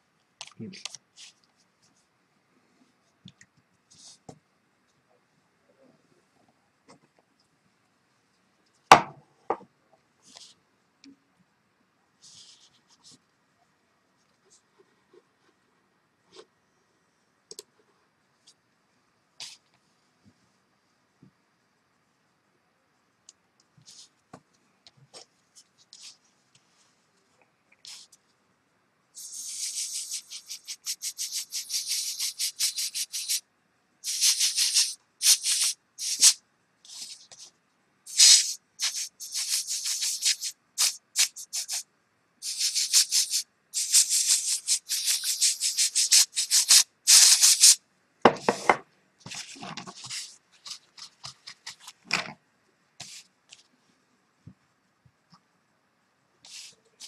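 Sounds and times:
drawing tool scratching paper: 0:29.2 - 0:33.4, 0:34.1 - 0:37.5, 0:38.1 - 0:41.8, 0:42.4 - 0:47.8
paper rustling: 0:48.5 - 0:52.2.

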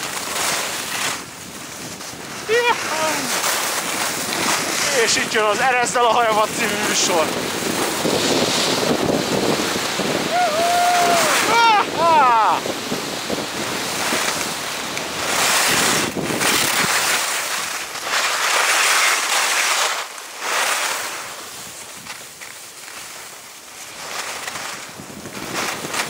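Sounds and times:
skis scraping over snow: 0:00.0 - 0:26.0
wind on microphone: 0:00.8 - 0:17.7, 0:24.5 - 0:26.0.

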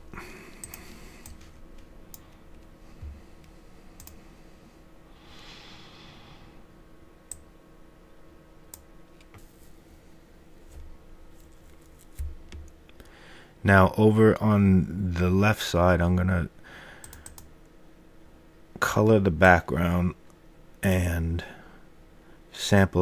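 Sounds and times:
computer mouse clicks: 0:03.4 - 0:04.2, 0:17.0 - 0:17.5.

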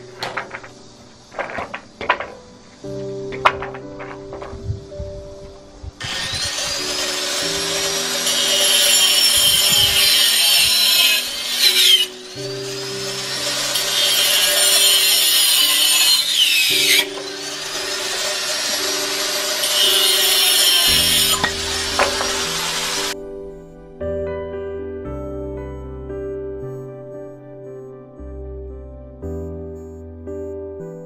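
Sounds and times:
angle grinder cutting bamboo: 0:06.0 - 0:23.2.

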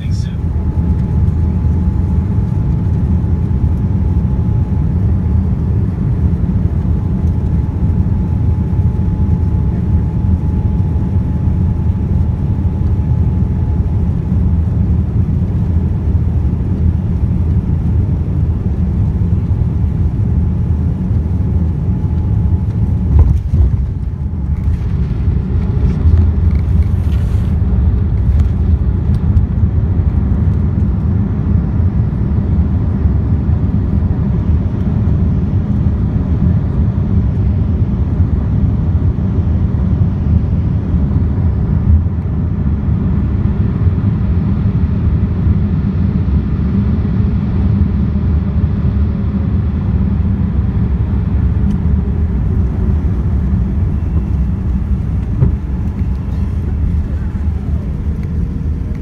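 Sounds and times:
faint steady whine: 0:00.0 - 0:31.8, 0:44.8 - 0:59.0
airliner cabin engine rumble: 0:00.0 - 0:59.0
sudden thump: 0:55.4 - 0:55.7.

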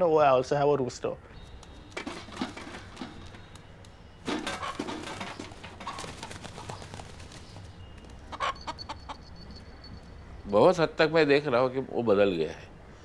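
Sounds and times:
light knocks and clatter: 0:01.4 - 0:07.0
rooster flapping wings: 0:04.3 - 0:08.5.

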